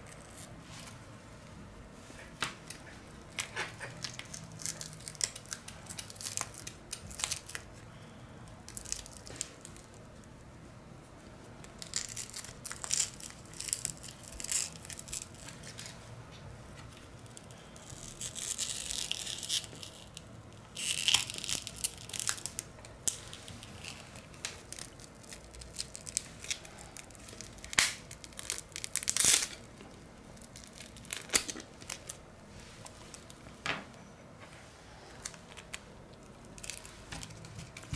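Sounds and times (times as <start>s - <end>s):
crinkling rustles: 11.7s - 37.9s.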